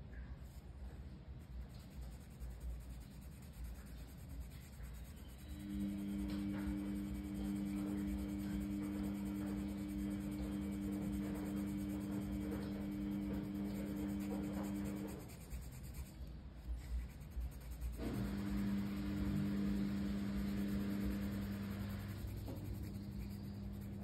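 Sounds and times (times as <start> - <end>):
colored pencil scratching on paper: 1.4 - 24.0
low hum of two held pitches: 5.0 - 15.4, 17.6 - 24.0.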